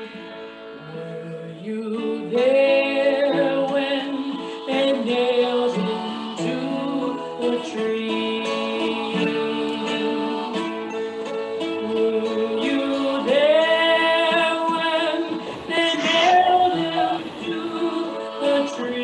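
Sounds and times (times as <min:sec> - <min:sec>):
instrumental accompaniment: 0:00.0 - 0:19.0
person singing held notes: 0:15.7 - 0:18.4.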